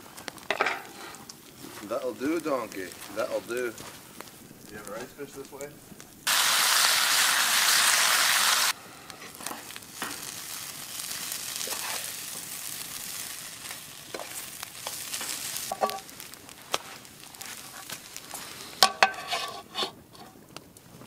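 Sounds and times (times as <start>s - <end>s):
bacon sizzling in frying pan: 0.0s - 19.8s
potatoes frying in pan: 0.0s - 21.0s
utensil stirring and scraping: 14.1s - 16.0s, 16.8s - 20.4s.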